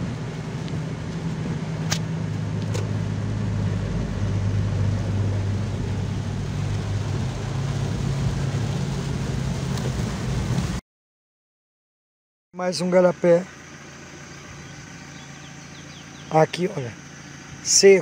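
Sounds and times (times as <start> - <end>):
car engine hum: 0.0 - 10.8, 12.6 - 18.0
rain on windshield: 0.0 - 10.8
truck diesel engine passing: 0.9 - 10.8
sharp clicks: 1.9 - 2.9.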